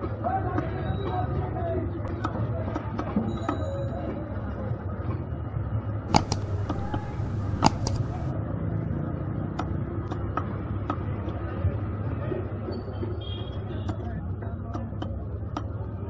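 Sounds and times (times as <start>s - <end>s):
sharp clicks and knocks: 6.1s - 8.3s.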